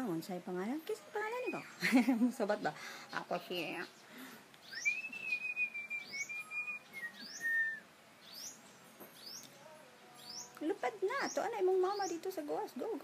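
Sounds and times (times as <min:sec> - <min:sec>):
songbird chirping: 0:00.0 - 0:13.0
person whistling a long note: 0:04.8 - 0:07.8.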